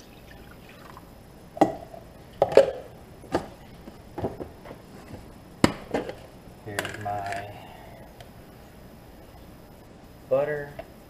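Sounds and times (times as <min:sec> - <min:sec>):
kitchen items knocking and clacking: 0:05.6 - 0:07.5.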